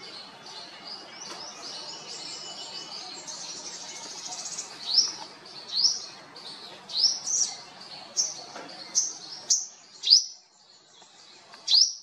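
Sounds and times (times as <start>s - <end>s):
small birds chirping: 0.0s - 12.0s
bird trill: 11.7s - 12.0s.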